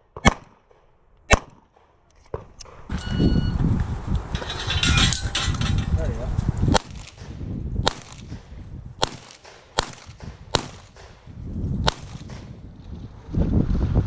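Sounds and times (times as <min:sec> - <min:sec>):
handgun shots: 0:00.2 - 0:01.9, 0:06.7 - 0:08.4, 0:09.0 - 0:11.2
wind rumbling on microphone: 0:02.5 - 0:14.0.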